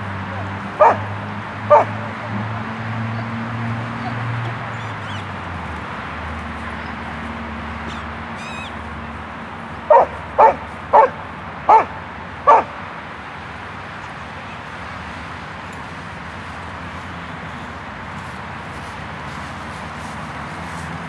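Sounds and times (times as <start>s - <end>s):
dog barking: 0.8s - 1.1s, 1.7s - 2.1s, 9.9s - 12.8s.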